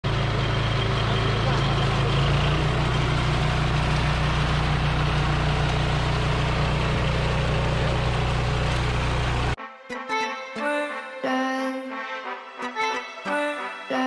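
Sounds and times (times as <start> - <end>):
mower engine running: 0.0 - 9.6
mower cutting tall grass: 0.1 - 9.6.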